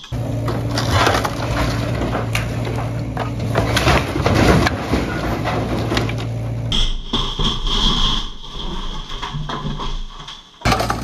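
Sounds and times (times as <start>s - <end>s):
diesel engine running: 0.0s - 7.1s
wood and roofing cracking: 0.0s - 11.0s.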